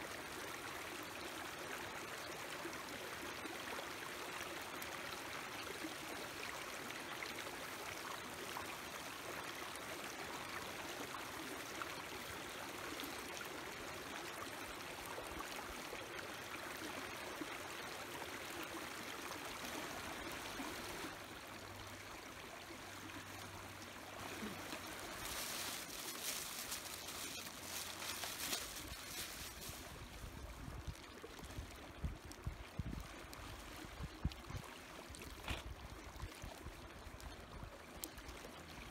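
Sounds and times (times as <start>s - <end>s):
stream running over rocks: 0.0s - 38.9s
fire crackling: 25.0s - 30.3s.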